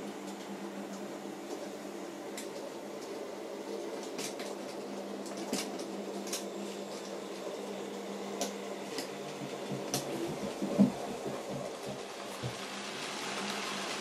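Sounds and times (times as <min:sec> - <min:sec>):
model train mechanical hum: 0:03.8 - 0:14.0.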